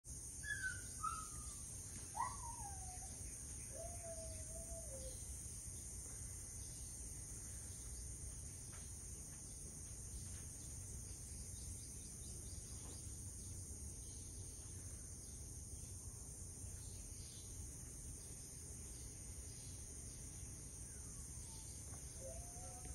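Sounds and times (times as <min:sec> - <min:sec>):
high-pitched insect chorus: 0:00.1 - 0:22.9
whistled bird calls: 0:00.4 - 0:05.3, 0:21.0 - 0:22.9.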